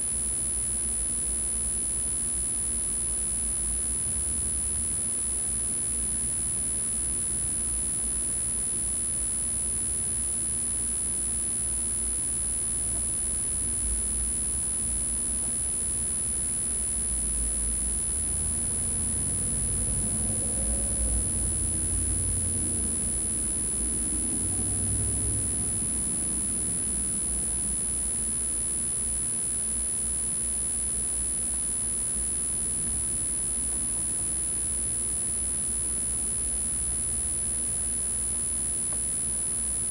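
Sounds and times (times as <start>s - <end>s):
high-pitched whine: 11.8s - 28.8s.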